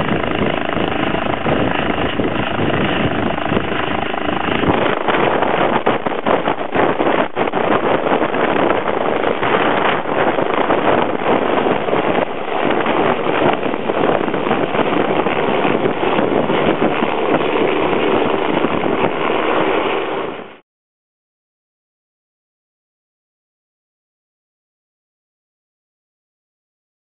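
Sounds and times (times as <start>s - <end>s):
helicopter rotors and turbines: 0.0s - 20.6s.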